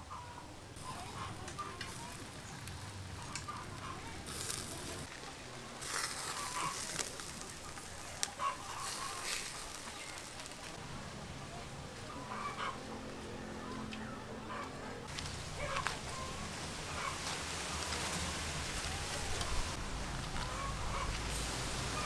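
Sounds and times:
chickens clucking: 0.0s - 10.8s, 11.4s - 22.0s
fat sizzling on coals: 0.7s - 10.8s, 15.1s - 22.0s.

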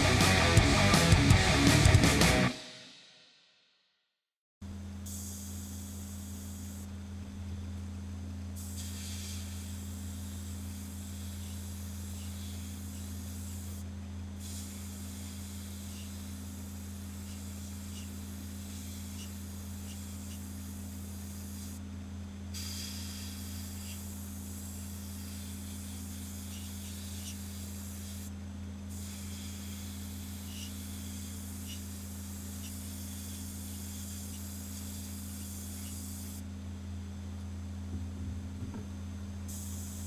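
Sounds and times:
steady low hum: 0.0s - 2.5s, 4.6s - 40.0s
airbrush hissing: 14.4s - 21.8s, 22.6s - 28.3s, 28.9s - 36.4s.

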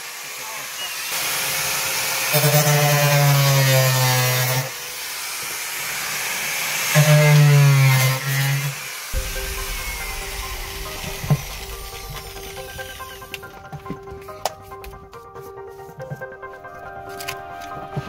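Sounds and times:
small power tool cutting: 0.0s - 9.1s.

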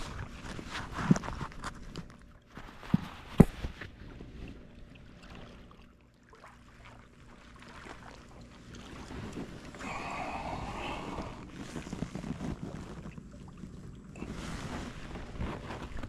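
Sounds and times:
faint handling noise with clicks: 0.0s - 3.9s.

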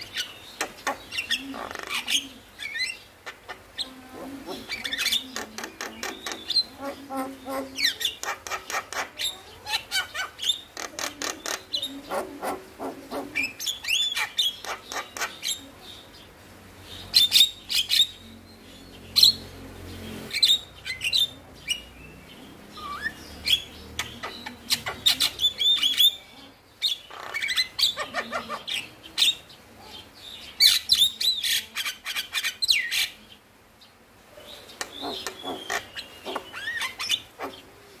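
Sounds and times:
bird singing whistled chattering notes: 34.6s - 37.7s.

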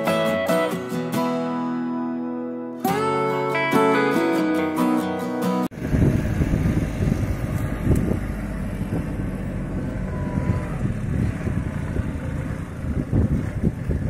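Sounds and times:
tractor engine rumbling: 5.4s - 14.0s.

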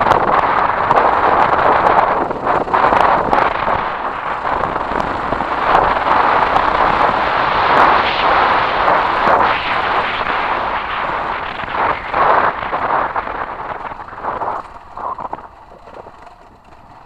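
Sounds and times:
motorcycle engine running: 0.0s - 17.0s
wind noise on microphone: 0.0s - 17.0s
clicks from riding: 11.8s - 17.0s.

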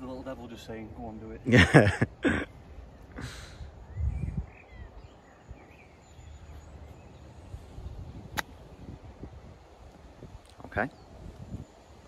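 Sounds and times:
faint bird chirps: 2.2s - 12.0s
wind rumble on microphone: 3.5s - 12.0s.

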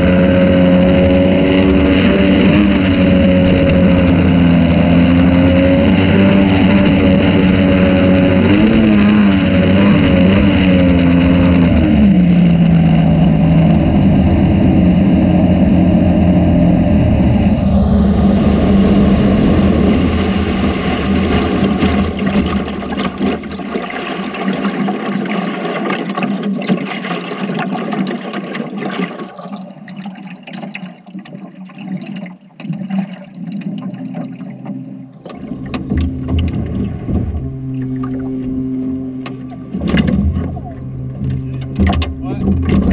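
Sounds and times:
small boat engine running: 0.0s - 42.9s
water wash: 0.0s - 42.9s
wind: 0.0s - 42.9s.

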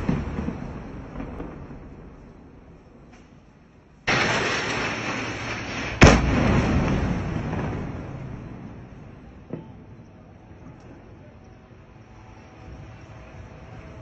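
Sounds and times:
bomb explosion blast: 0.0s - 3.1s, 4.0s - 10.1s.

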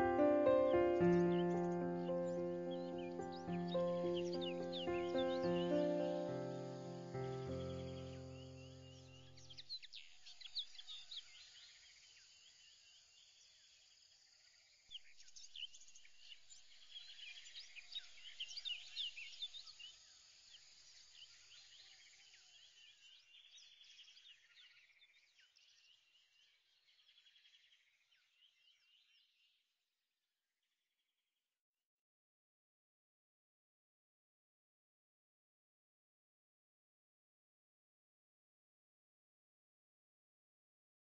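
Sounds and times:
faint birdsong chirps and whistles: 0.0s - 14.0s, 14.9s - 29.6s.

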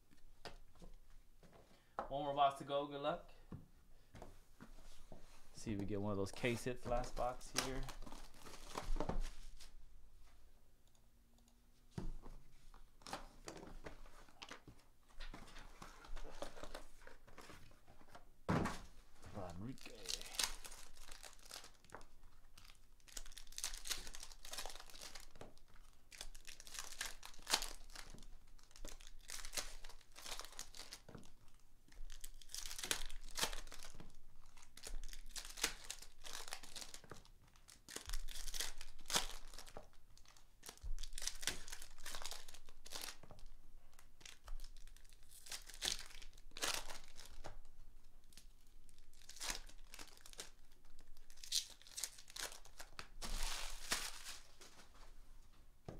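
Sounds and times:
foil wrappers crinkling: 6.0s - 9.7s, 19.4s - 55.0s.

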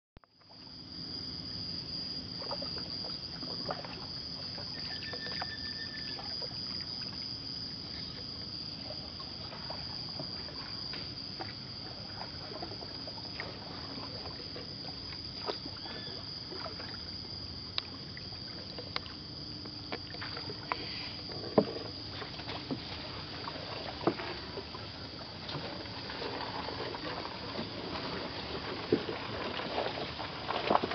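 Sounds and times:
high-pitched insect drone: 0.4s - 28.2s
paddle strokes in water: 2.2s - 30.9s
paddle knocking on hull: 21.3s - 24.8s.

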